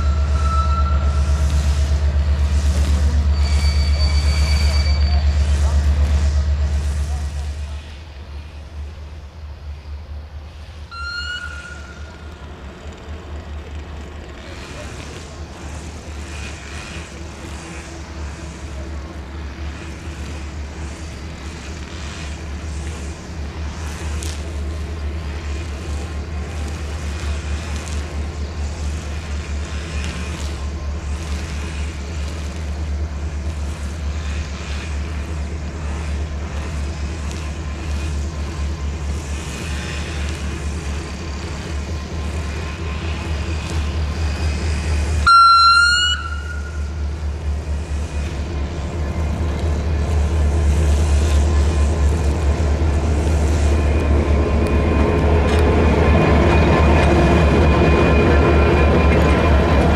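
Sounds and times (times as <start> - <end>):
diesel locomotive engine throbbing: 0.0 - 59.9
high train horn blast: 45.1 - 47.0.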